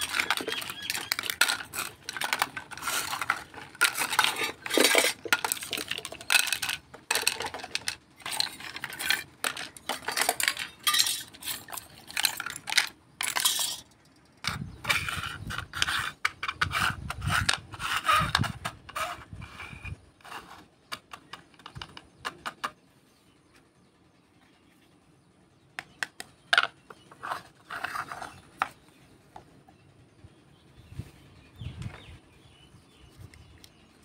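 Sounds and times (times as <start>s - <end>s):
plastic toys clattering: 0.0s - 22.8s, 26.0s - 29.6s.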